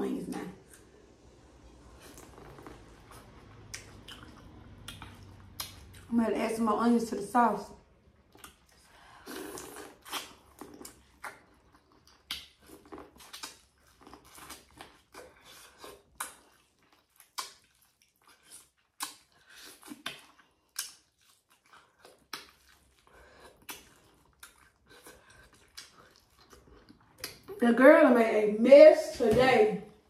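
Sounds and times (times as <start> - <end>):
chewing: 1.9 - 6.1, 8.2 - 27.6.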